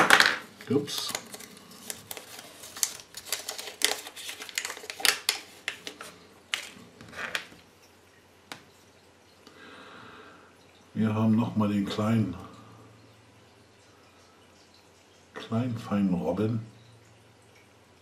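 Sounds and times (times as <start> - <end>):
wrapper crinkling and clicks: 0.0 - 7.6.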